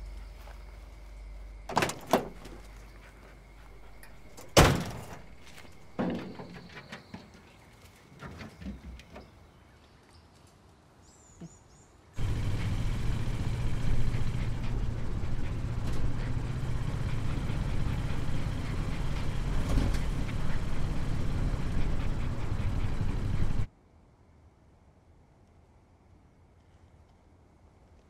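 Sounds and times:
pickup truck driving on dirt road: 0.0s - 7.5s, 12.2s - 23.7s.

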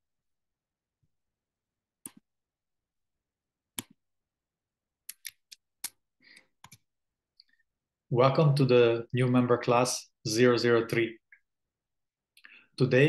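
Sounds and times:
computer mouse clicks: 2.0s - 2.3s, 3.8s - 4.0s, 5.1s - 6.9s.

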